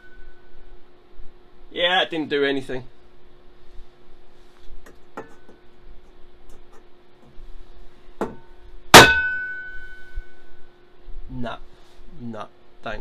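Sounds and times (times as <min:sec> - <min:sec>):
wok ringing: 0:00.0 - 0:00.7, 0:08.3 - 0:10.8
hammer striking chisel on metal: 0:08.2 - 0:08.4, 0:09.0 - 0:10.0.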